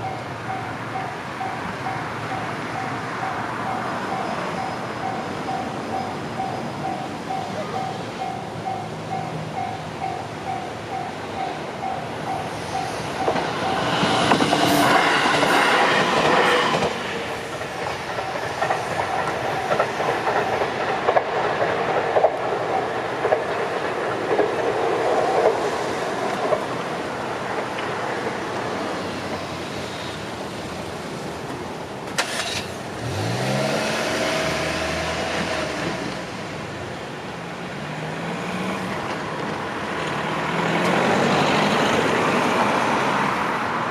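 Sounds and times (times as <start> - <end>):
crossing warning bell ringing: 0.0 - 21.3, 22.6 - 23.3
train wheels clacking on rails: 0.0 - 28.8
cars driving past: 32.2 - 36.8, 37.7 - 43.9.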